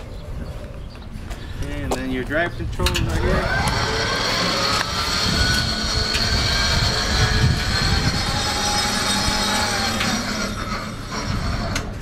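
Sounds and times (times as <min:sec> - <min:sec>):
wheels rumbling on concrete: 0:00.0 - 0:12.0
electric motor whining: 0:03.0 - 0:12.0.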